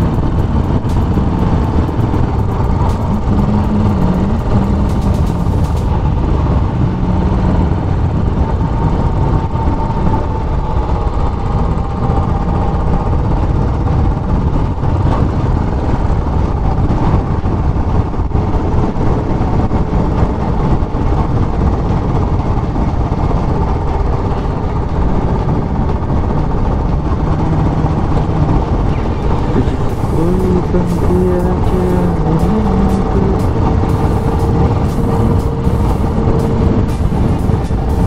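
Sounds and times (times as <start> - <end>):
motorcycle engine running: 0.0 - 9.9, 24.3 - 38.0
rushing noise: 0.0 - 38.0.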